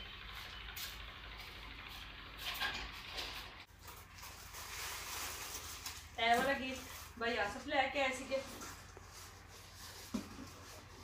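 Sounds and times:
soft rustling and handling: 0:03.3 - 0:11.0.

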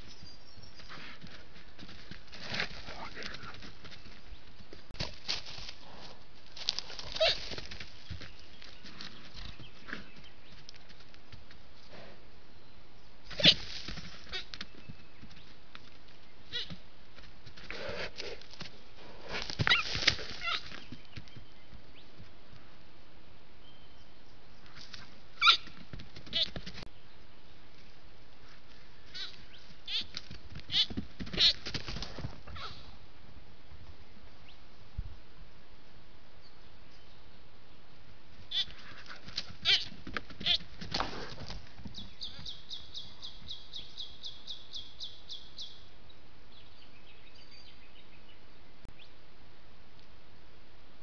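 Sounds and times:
deer calling: 0:25.4 - 0:25.7, 0:29.0 - 0:30.1, 0:38.5 - 0:38.9.

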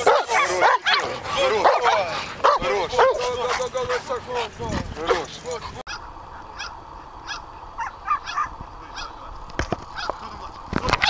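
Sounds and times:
dog barking: 0:00.0 - 0:04.2, 0:05.9 - 0:09.2, 0:09.9 - 0:10.2.

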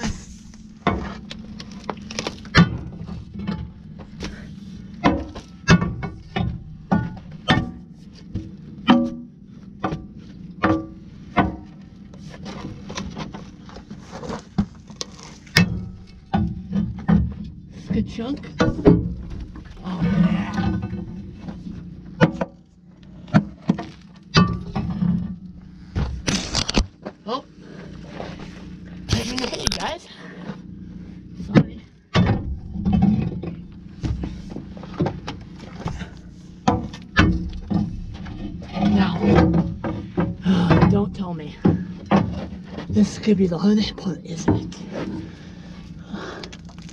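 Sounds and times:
metal bar striking mud and metal: 0:00.0 - 0:11.8, 0:15.5 - 0:17.4, 0:23.3 - 0:25.4, 0:32.1 - 0:34.2, 0:36.6 - 0:41.0
steady low hum: 0:00.0 - 0:46.9
metal pry bar striking mud: 0:05.0 - 0:07.9, 0:08.8 - 0:10.0.

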